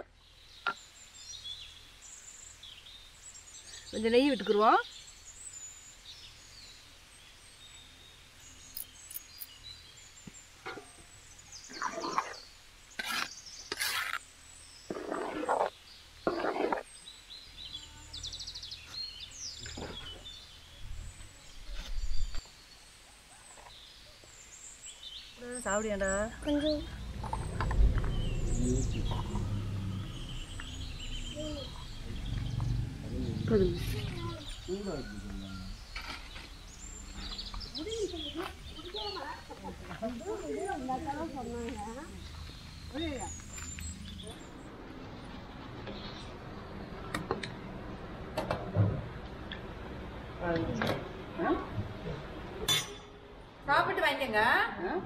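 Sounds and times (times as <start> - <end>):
faint bird chirps: 17.1 - 44.7
low outdoor rumble: 25.4 - 54.8.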